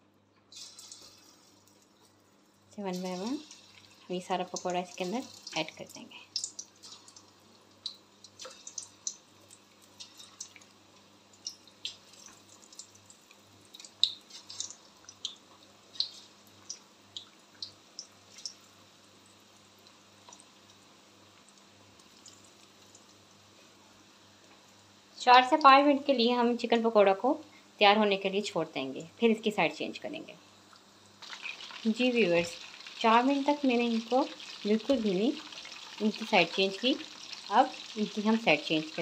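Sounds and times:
oil crackling and popping: 0.5 - 2.2, 2.9 - 18.6, 30.7 - 39.0
food frying in hot oil: 0.5 - 25.9, 30.5 - 39.0.

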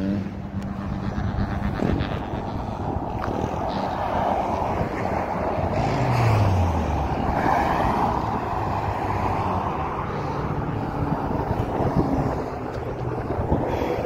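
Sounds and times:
wind noise on microphone: 0.0 - 14.0
car driving past: 2.5 - 13.8.

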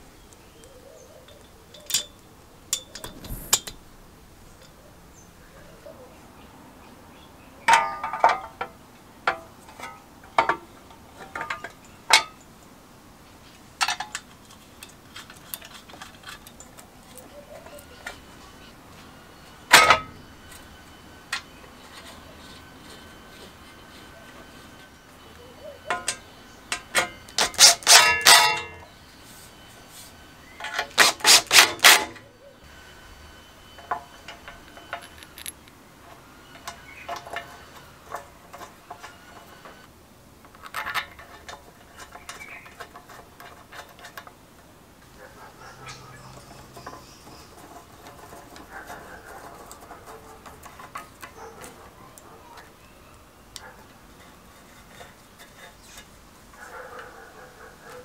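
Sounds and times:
small metal parts clicking: 34.3 - 35.8.

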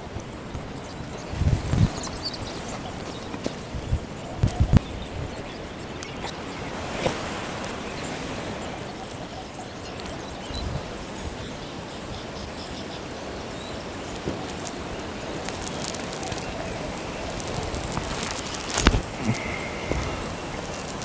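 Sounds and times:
wind on microphone: 0.0 - 12.1, 13.8 - 21.0
small crackles and clicks: 0.5 - 10.6, 13.4 - 21.0
vegetation rustling: 13.8 - 21.0.

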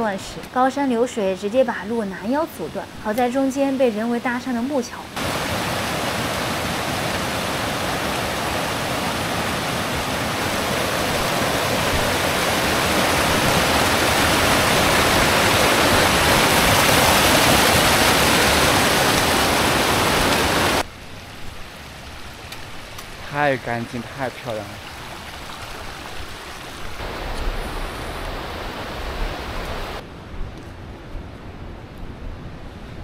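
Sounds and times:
stream rushing over rocks: 4.8 - 30.0.

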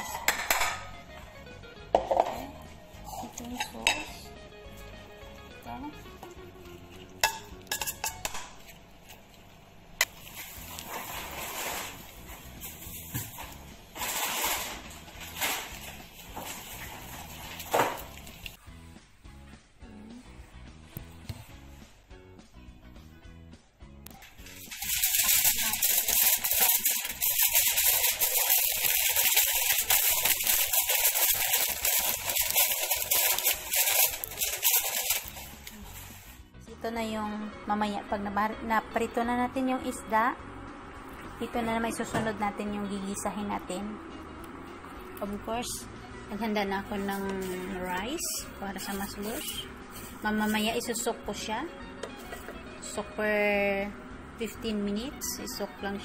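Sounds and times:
aluminium foil crinkling: 8.7 - 18.6, 24.2 - 36.4, 47.0 - 51.1.

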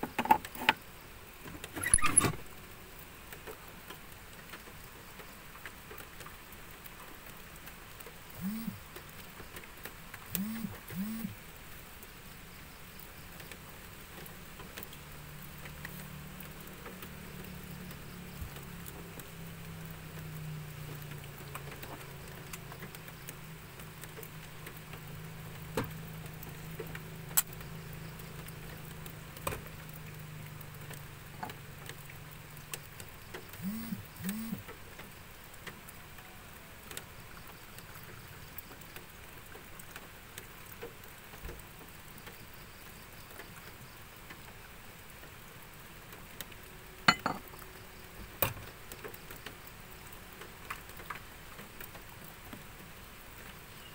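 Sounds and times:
light rain patter and drips: 0.0 - 53.9
metal pot clanking: 47.1 - 47.5.

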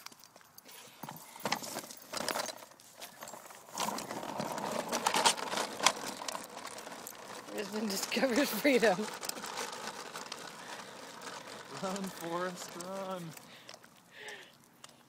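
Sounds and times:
baby walker wheels clattering: 0.0 - 14.7
toys rattling: 1.0 - 15.0.

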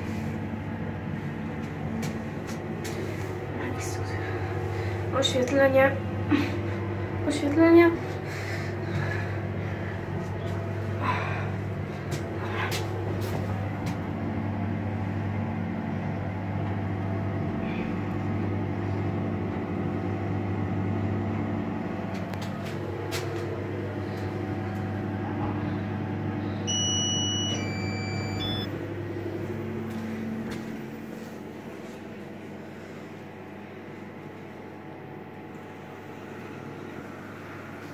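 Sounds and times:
lift drive humming: 0.0 - 37.9
electronic beeps: 26.7 - 28.7.

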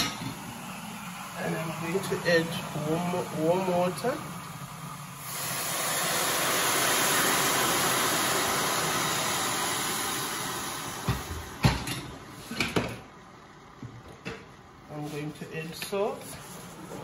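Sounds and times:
water pouring into a pan: 5.3 - 11.0.

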